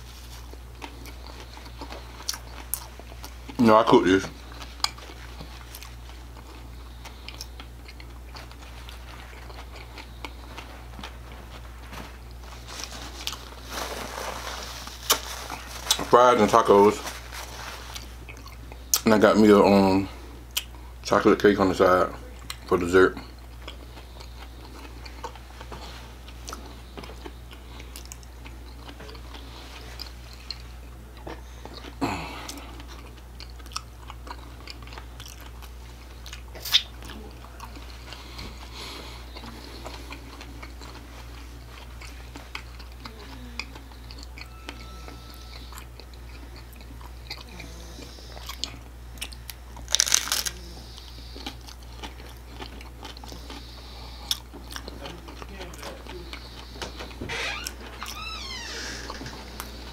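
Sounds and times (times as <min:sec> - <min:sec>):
wet chewing: 0:00.4 - 0:13.6, 0:22.4 - 0:44.8, 0:45.5 - 0:59.9
crunching bites: 0:48.4 - 0:50.6.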